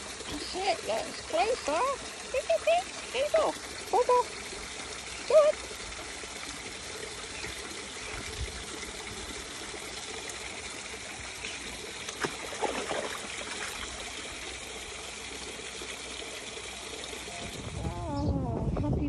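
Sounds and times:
stream water trickling: 0.0s - 18.2s
dog splashing in water: 12.0s - 14.2s.

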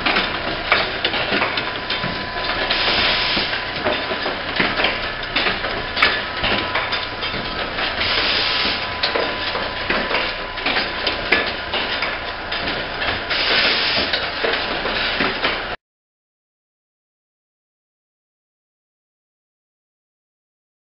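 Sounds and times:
machinery clicking and clattering: 0.0s - 15.8s
compressed air hiss: 13.3s - 14.1s.

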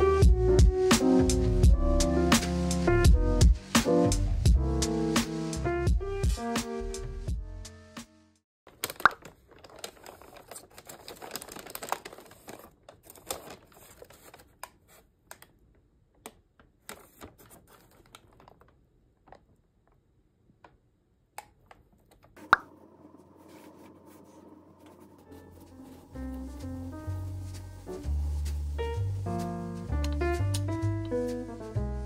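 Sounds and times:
soft music: 0.0s - 8.4s, 22.4s - 32.0s
paper bag rustling: 8.7s - 15.0s, 16.9s - 18.7s, 23.3s - 29.6s.

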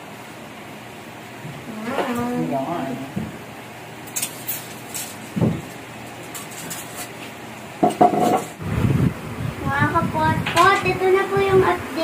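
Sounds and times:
knocks on wooden ladder: 7.8s - 8.5s.

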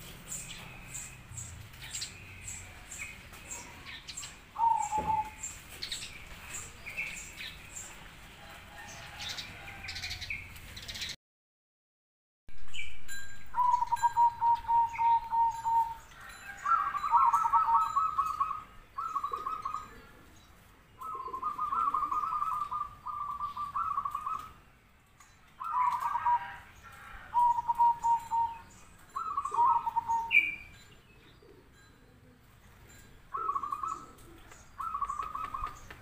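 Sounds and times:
dove cooing: 2.1s - 7.2s, 13.5s - 20.4s, 21.0s - 24.6s, 25.6s - 36.0s.

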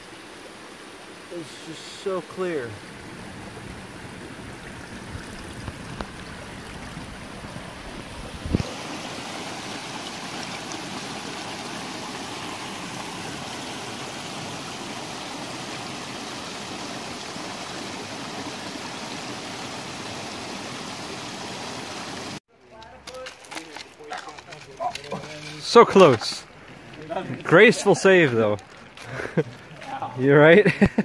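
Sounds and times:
creek water running over rocks: 0.0s - 31.0s.

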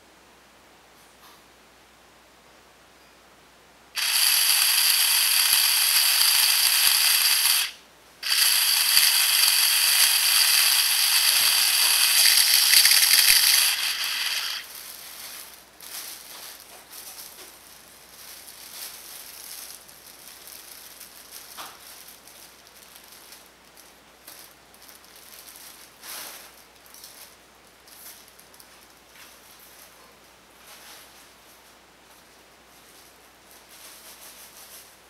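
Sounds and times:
power drill high whine: 4.0s - 14.7s.

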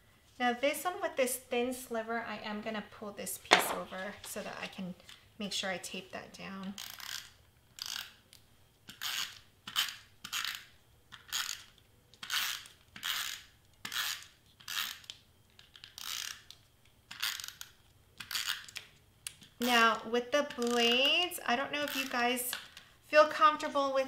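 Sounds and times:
tape runner scraping zips: 6.7s - 8.3s, 8.9s - 15.2s, 15.8s - 18.8s, 19.6s - 22.5s.

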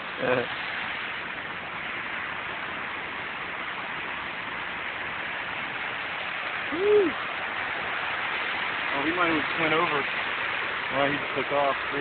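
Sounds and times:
small waterfall rushing: 0.0s - 12.0s
person saying ooh: 6.7s - 7.2s.

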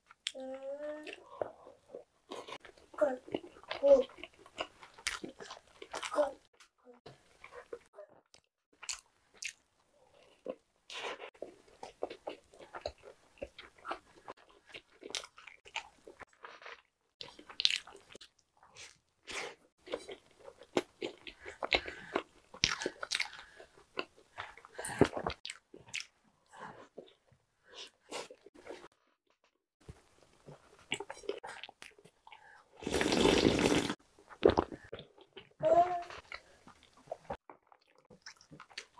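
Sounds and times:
biting and chewing food: 1.1s - 6.2s, 7.2s - 26.2s, 29.8s - 38.9s.

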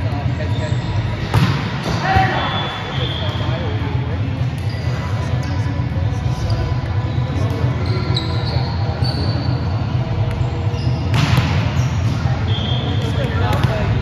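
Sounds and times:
sneakers squeaking on court floor: 7.3s - 9.6s.

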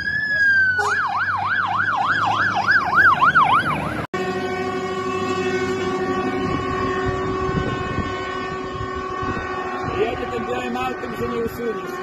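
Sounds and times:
fire engine siren yelp: 0.0s - 12.0s
steady multi-note horn: 4.2s - 12.0s.

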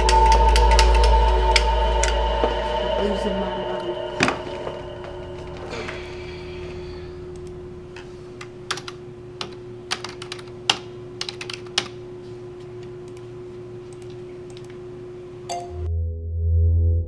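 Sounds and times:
computer keyboard typing: 0.0s - 1.7s, 8.4s - 12.0s
steady hum: 0.0s - 15.9s.

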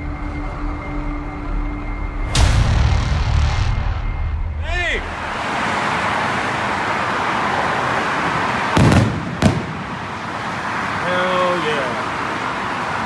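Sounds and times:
firework booms: 8.8s - 10.0s.

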